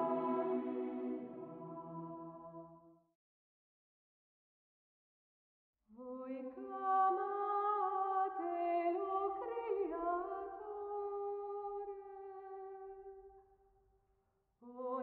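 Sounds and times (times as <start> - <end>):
slow singing in held notes: 0.0 - 2.0.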